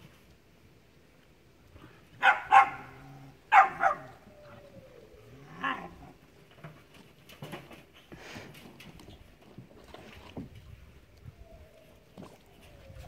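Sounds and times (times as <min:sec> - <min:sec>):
puppies barking: 0:02.2 - 0:04.2.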